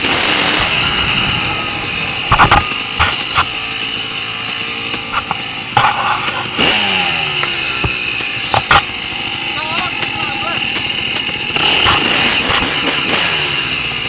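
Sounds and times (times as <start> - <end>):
dirt bike engine running: 0.0 - 14.0
sharp thumps from bumps: 2.2 - 13.4.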